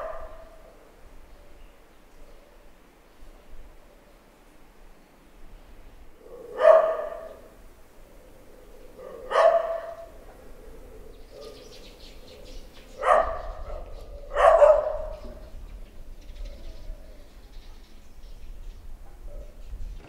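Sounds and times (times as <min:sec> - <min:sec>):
dog barking: 0:00.0 - 0:00.6, 0:06.2 - 0:07.5, 0:09.0 - 0:10.2, 0:11.3 - 0:11.7, 0:13.0 - 0:15.3.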